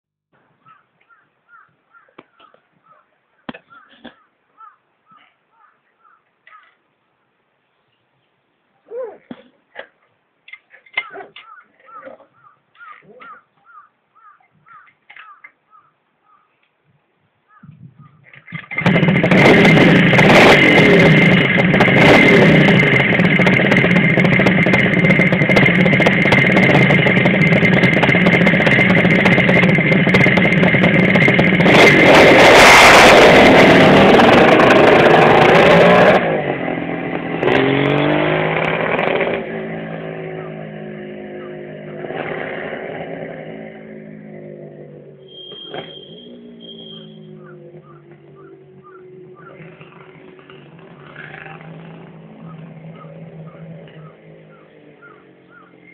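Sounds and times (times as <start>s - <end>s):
motorcycle engine revving: 18.0s - 55.9s.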